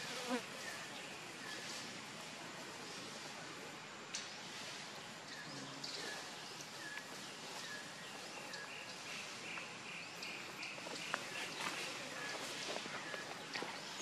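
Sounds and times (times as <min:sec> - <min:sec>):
outdoor background hiss: 0:00.0 - 0:14.0
small birds chirping: 0:04.1 - 0:14.0.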